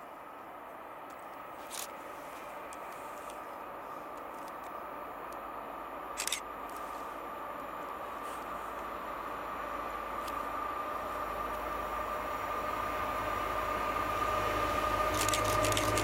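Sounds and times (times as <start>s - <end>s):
distant train approaching: 0.0s - 16.0s
sharp clicks: 15.1s - 16.0s.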